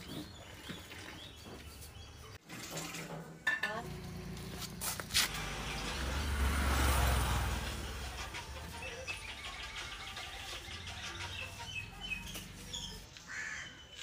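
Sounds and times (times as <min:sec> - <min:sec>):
motorbike passing: 0:03.8 - 0:13.0.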